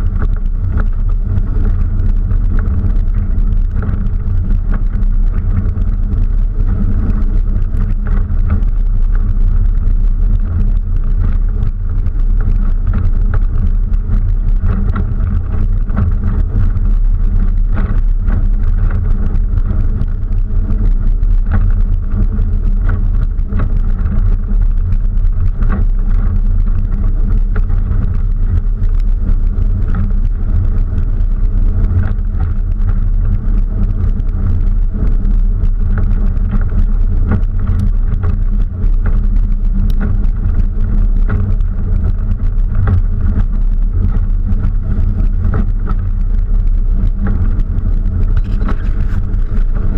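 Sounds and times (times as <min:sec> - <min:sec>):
low engine drone: 0:00.0 - 0:49.9.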